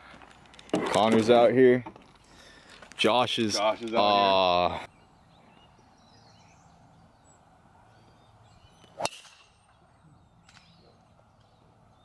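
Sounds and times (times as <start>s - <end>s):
quiet outdoor background: 0.0s - 12.0s.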